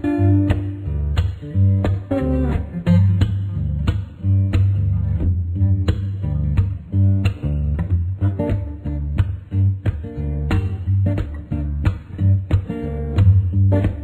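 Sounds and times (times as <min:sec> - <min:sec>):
bass line: 0:00.0 - 0:14.0
plucked and strummed guitar: 0:00.0 - 0:14.0
steady beat: 0:00.0 - 0:14.0.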